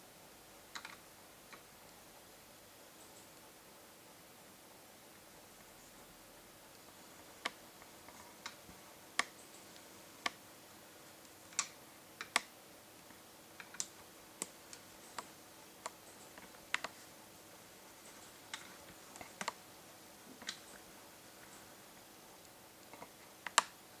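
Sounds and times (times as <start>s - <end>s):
faint steady hum: 0.0s - 24.0s
small sharp clicks: 0.7s - 1.7s, 11.2s - 17.0s, 18.1s - 19.6s, 22.4s - 23.8s.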